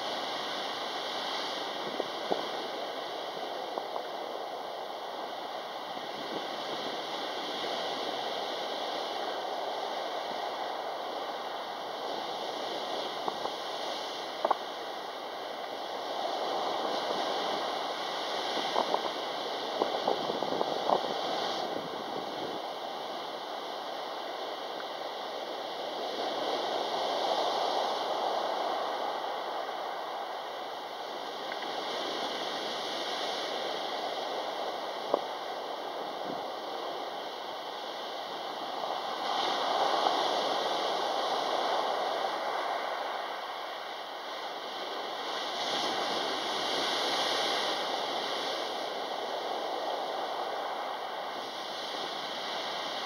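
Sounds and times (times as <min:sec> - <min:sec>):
surf breaking on pebbles: 0:38.3 - 0:53.0.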